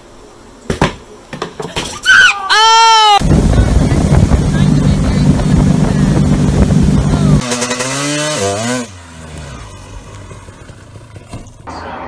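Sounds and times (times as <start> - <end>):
pitched whine: 3.0 - 8.0
wind and wake rushing: 3.2 - 7.4
motorboat engine running: 3.2 - 7.5, 9.4 - 11.6.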